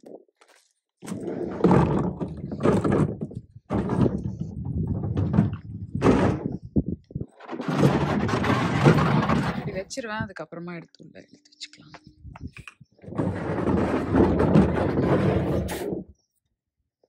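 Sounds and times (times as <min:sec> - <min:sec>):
trash bin rolling on concrete: 0:01.0 - 0:10.2, 0:13.0 - 0:16.0.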